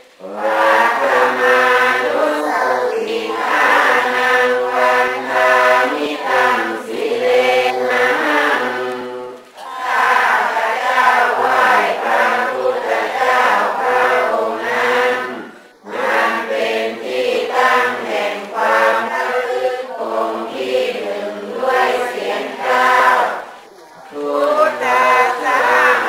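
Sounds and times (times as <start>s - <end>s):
group chanting in unison: 0.0s - 26.0s.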